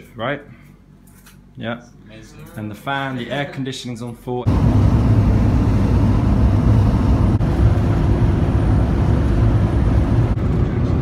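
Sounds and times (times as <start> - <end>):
van engine and road noise: 4.5 - 11.0.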